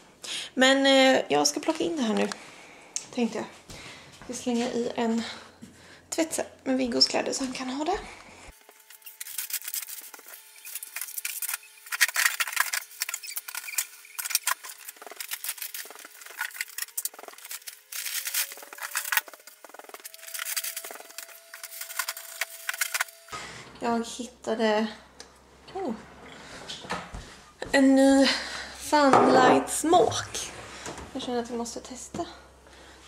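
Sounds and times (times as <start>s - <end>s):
faint steady hum: 7.5s - 33.0s
packaging rustling and crinkling: 8.6s - 23.3s.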